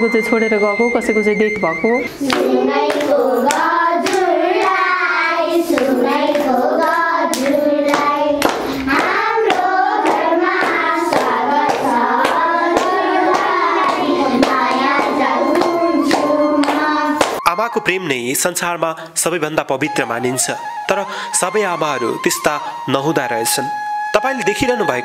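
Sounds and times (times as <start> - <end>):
hand claps: 2.2 - 4.9, 5.7 - 17.4
children singing: 2.2 - 17.4.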